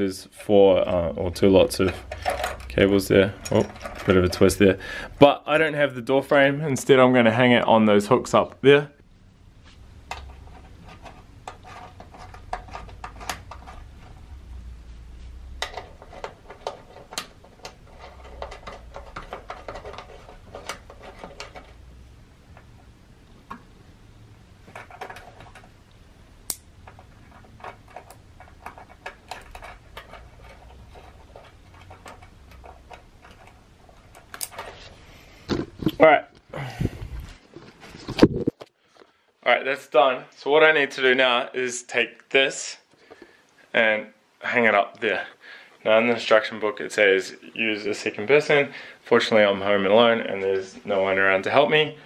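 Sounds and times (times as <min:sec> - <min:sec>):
metal cables and carabiners clicking: 0:01.4 - 0:04.7, 0:26.5 - 0:34.8.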